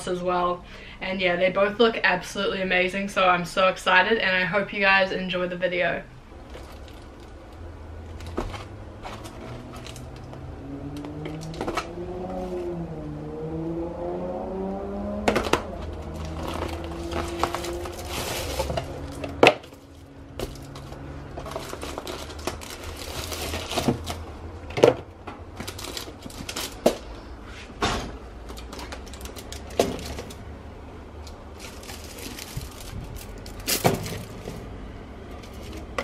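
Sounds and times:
foil and plastic crinkling: 6.4 - 10.1, 16.0 - 24.3, 25.6 - 27.2, 28.5 - 30.4, 31.3 - 34.7
trays clattering: 15.2 - 27.1, 31.6 - 36.0.

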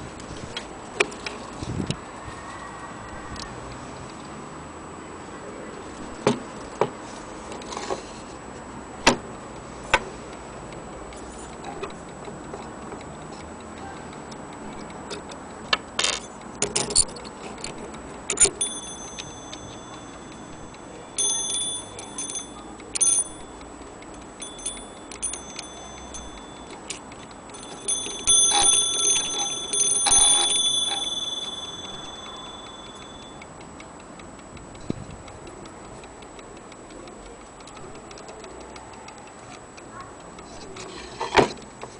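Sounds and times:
clock mechanism clicking: 5.9 - 41.9
clock hammer striking bell: 18.3 - 33.4.

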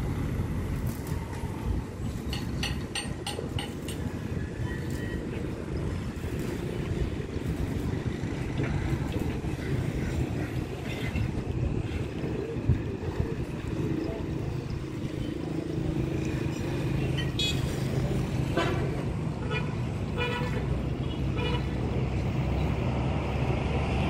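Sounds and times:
road traffic: 0.0 - 24.0.

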